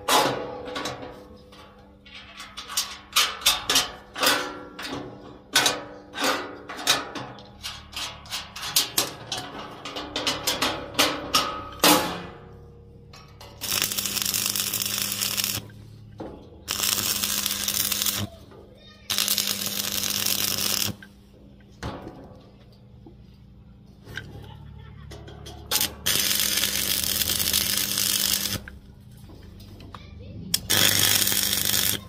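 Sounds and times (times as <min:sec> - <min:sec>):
hammer striking steel: 0:10.2 - 0:12.4.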